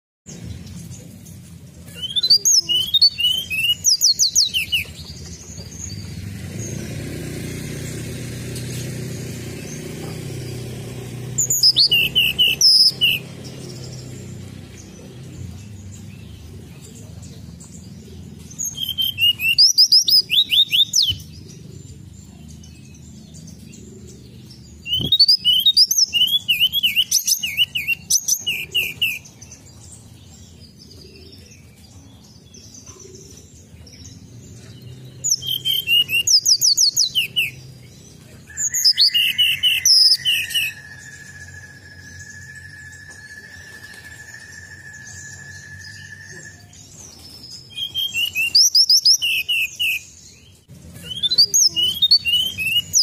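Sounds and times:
bird singing high notes: 1.9 - 4.9, 11.3 - 15.0, 38.8 - 50.2, 51.0 - 53.0
steady high tone: 40.6 - 46.9.

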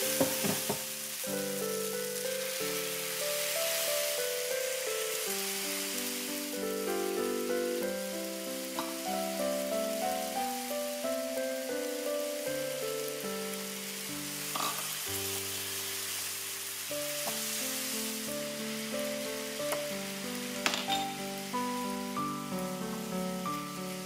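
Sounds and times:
frying pan sizzling: 0.0 - 24.0
soft background music: 0.0 - 24.0.

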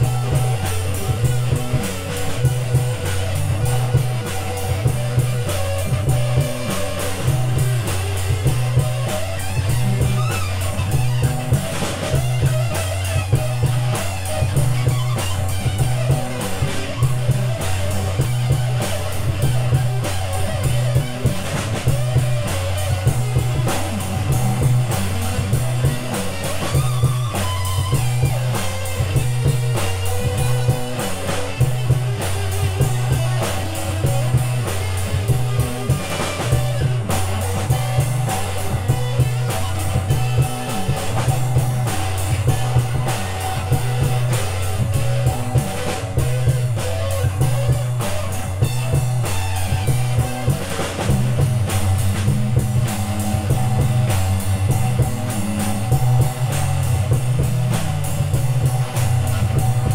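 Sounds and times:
drum kit: 0.0 - 59.9
electric guitar: 0.0 - 59.9
low repeating bass figure: 0.0 - 59.9.

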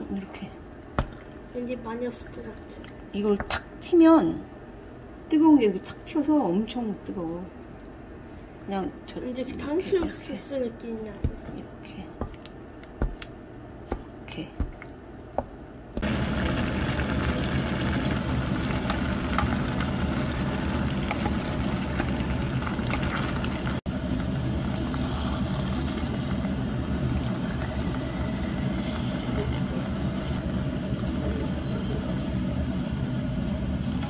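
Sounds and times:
motor hum: 0.0 - 34.0.

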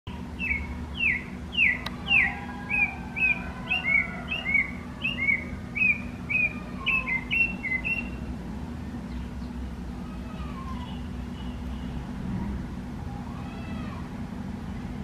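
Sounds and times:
bird calling: 0.1 - 8.4, 9.1 - 12.1
steady low hum: 0.1 - 15.0.

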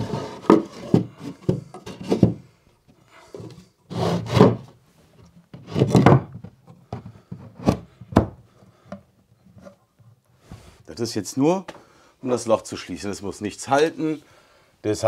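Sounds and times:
wood scraping against wood: 0.0 - 2.6, 3.2 - 8.0.

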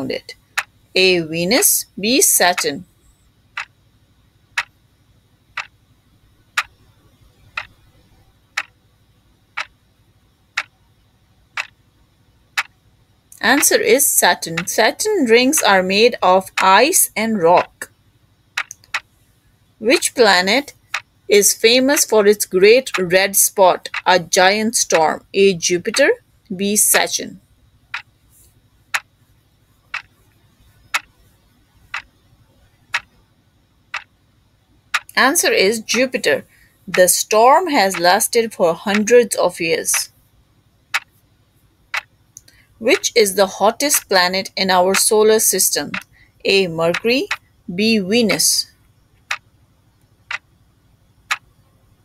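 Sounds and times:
clock ticking: 0.0 - 0.7, 1.4 - 2.8, 4.6 - 4.8, 5.5 - 5.8, 6.6 - 6.8, 7.5 - 7.8, 9.5 - 9.8, 11.6 - 11.8, 13.4 - 17.9, 18.6 - 19.1, 19.9 - 26.2, 26.8 - 27.2, 29.9 - 30.2, 30.9 - 32.2, 32.9 - 33.1, 33.9 - 34.1, 34.9 - 40.1, 40.9 - 41.2, 41.9 - 47.4.

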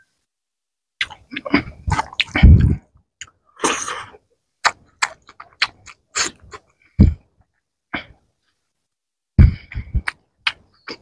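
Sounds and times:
lip smacks and mouth clicks: 1.0 - 3.4, 4.6 - 6.7, 10.0 - 11.0
wet chewing: 1.0 - 3.9, 4.6 - 7.2, 9.9 - 11.0.

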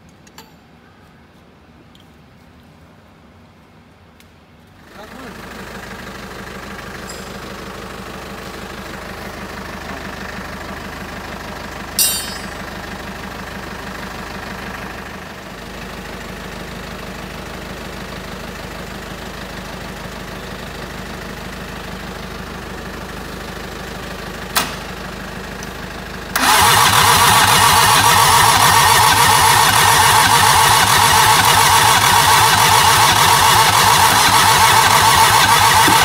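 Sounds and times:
engine idling: 4.8 - 36.0
sharp metal clank: 7.0 - 7.4, 12.0 - 12.6
loud engine noise: 25.7 - 36.0.

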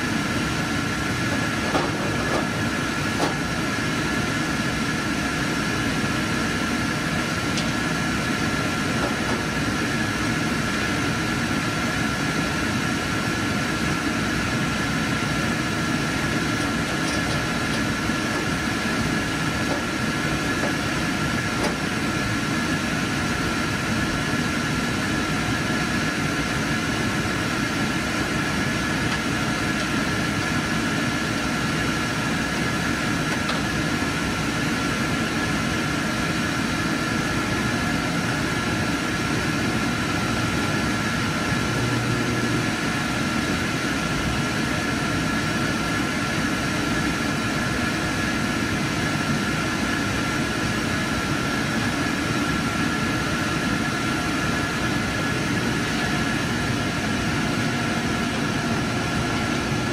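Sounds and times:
machinery and cooling fans whirring: 0.0 - 59.9.

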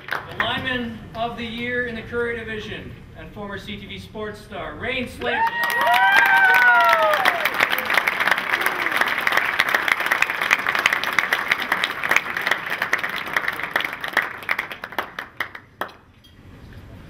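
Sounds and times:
audience applauding: 0.0 - 0.5, 5.4 - 16.0.

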